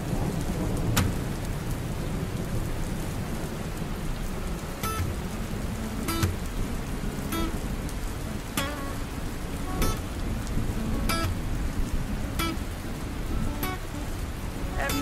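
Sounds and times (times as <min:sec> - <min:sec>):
low rumble of thunder: 0:00.0 - 0:08.2
steady rainfall: 0:00.0 - 0:15.0.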